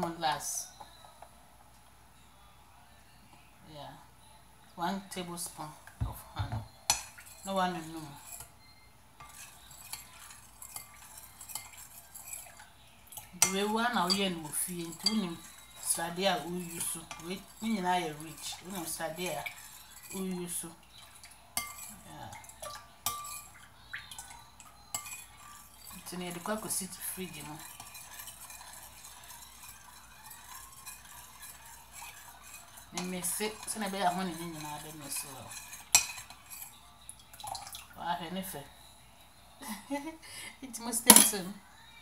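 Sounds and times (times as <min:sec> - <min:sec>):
spoon scraping glass bowl: 0:06.2 - 0:37.8
utensil clinking against glass: 0:21.0 - 0:37.8.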